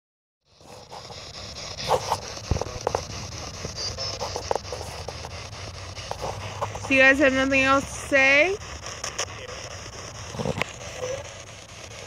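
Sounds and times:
crackles and clipped sound fragments: 0:00.5 - 0:12.0
radio static hiss: 0:00.5 - 0:12.0.

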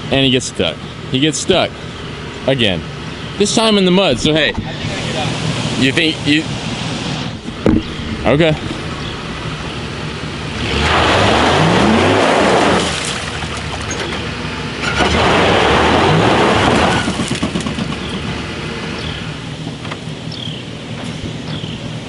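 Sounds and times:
truck engine revving and idling: 0:00.0 - 0:22.0
wheels churning mud and water: 0:09.4 - 0:19.0.

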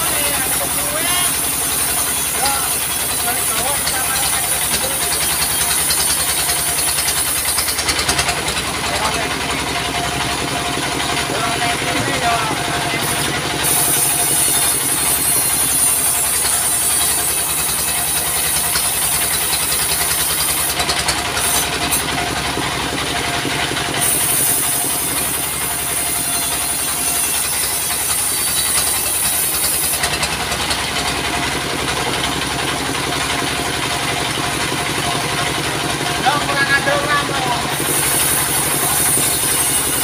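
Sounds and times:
saw blade cutting log hiss: 0:00.0 - 0:08.0, 0:12.9 - 0:22.1, 0:24.0 - 0:30.2, 0:37.6 - 0:40.0
diesel engine running: 0:00.0 - 0:40.0.

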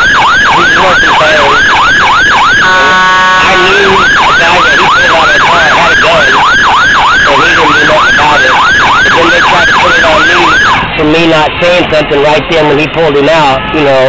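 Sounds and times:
siren yelping: 0:00.0 - 0:11.4
horn blast: 0:02.6 - 0:05.7.

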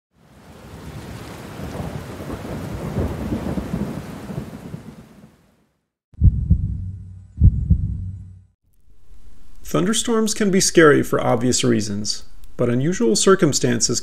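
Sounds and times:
steady rain: 0:00.1 - 0:05.6
low rolling thunder: 0:00.4 - 0:05.0
low thump: 0:06.2 - 0:08.4.

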